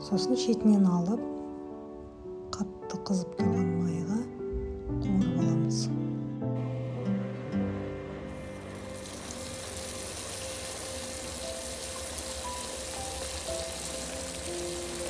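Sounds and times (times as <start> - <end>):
dough sizzling in hot oil: 8.5 - 15.0.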